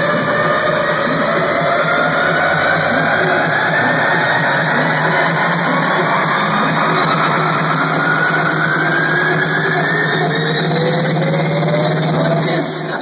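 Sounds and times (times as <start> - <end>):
rising pitch sweeps: 0.0 - 12.4.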